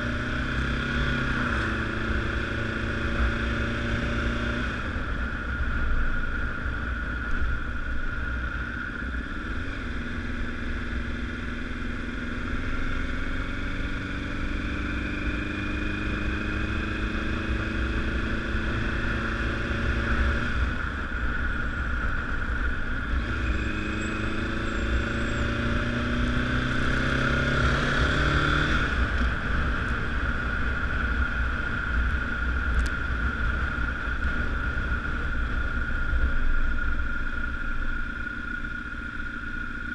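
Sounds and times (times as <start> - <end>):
motorcycle engine revving: 0.0 - 39.9
heavy low rumbling noise: 4.2 - 14.7, 20.2 - 39.9.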